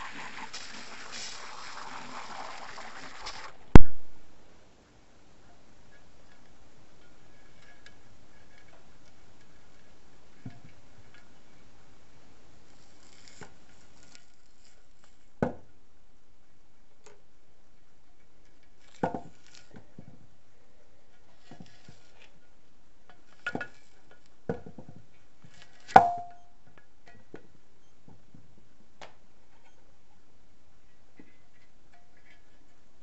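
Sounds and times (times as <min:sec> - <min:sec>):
sharp knocks on metal: 0:26.0 - 0:26.5.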